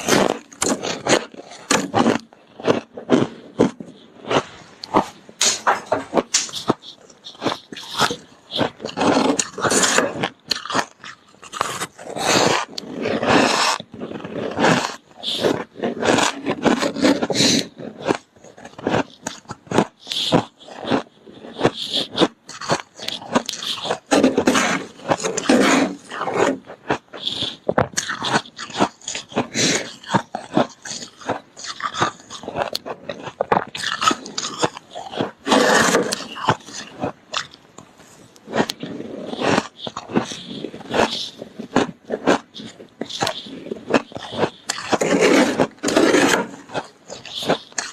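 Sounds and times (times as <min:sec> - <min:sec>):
frost crunching between teeth: 0:00.0 - 0:47.9.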